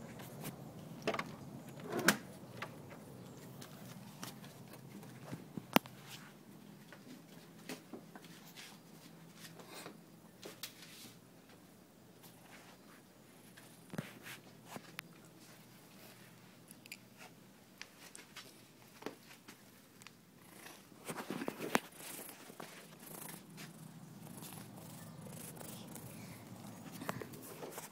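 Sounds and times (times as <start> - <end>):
clicks and rustles: 16.7 - 27.9
cat purring: 20.4 - 27.5.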